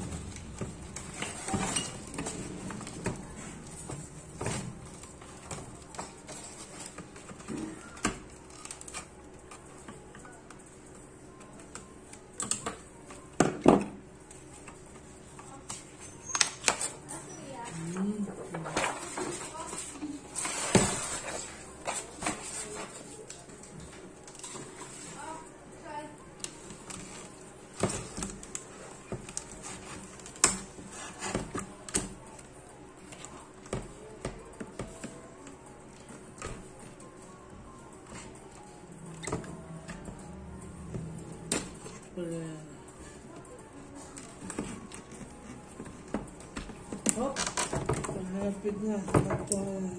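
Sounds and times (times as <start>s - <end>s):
crackling plastic sheets: 0.2s - 10.4s, 26.4s - 37.1s.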